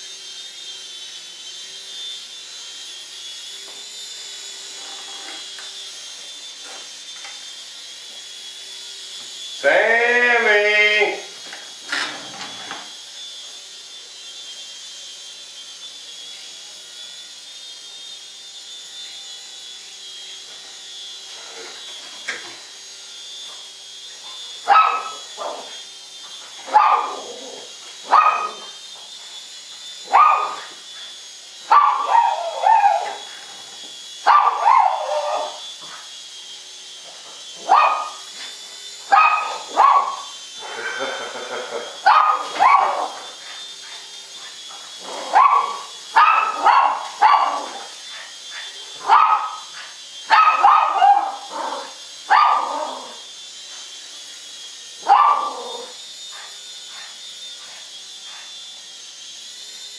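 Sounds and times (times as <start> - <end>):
high whine of electric motors: 0.0 - 59.9
small dog barking: 24.7 - 25.7, 26.7 - 27.5, 28.1 - 28.7, 30.1 - 30.7, 31.7 - 33.2, 34.3 - 35.6, 37.6 - 38.2, 39.1 - 40.3, 42.0 - 43.2, 45.2 - 47.8, 48.6 - 53.1, 55.0 - 57.1.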